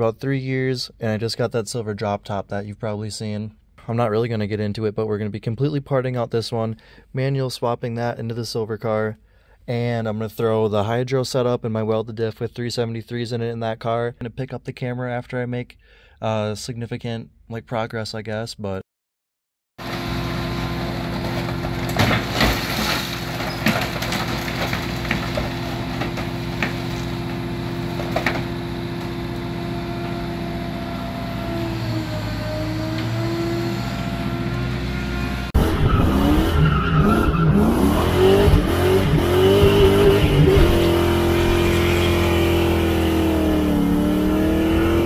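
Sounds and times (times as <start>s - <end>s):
car engine accelerating: 19.8s - 45.0s
diesel engine running: 19.8s - 45.0s.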